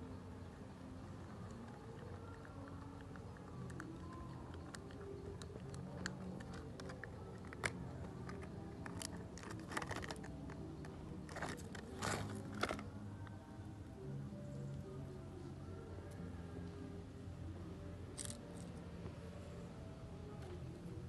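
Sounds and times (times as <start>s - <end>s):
soft background music: 0.0s - 21.0s
plastic cup crinkling: 3.6s - 10.6s, 11.2s - 12.9s.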